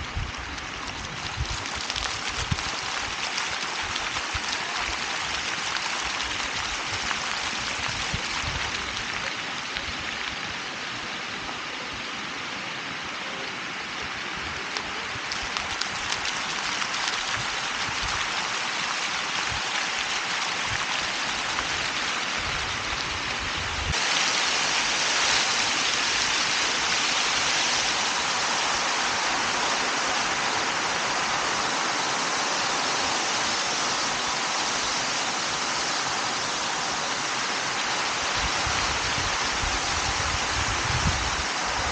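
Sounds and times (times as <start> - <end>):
wind rumble on microphone: 0.0 - 3.2, 6.5 - 10.3, 20.6 - 24.0, 38.2 - 41.9
fountain water splashing: 0.0 - 41.9.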